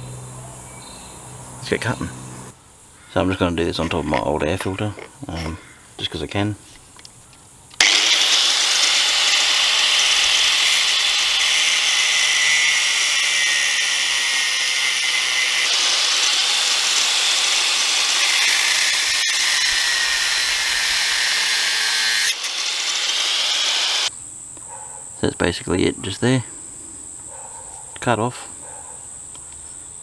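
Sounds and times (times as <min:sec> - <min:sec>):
angle grinder cutting steel: 0:07.8 - 0:24.1.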